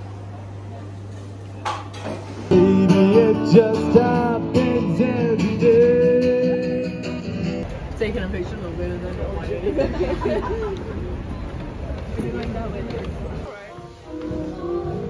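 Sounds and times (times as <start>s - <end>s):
acoustic guitar through amplifier: 1.6s - 7.7s
man singing: 2.5s - 7.3s.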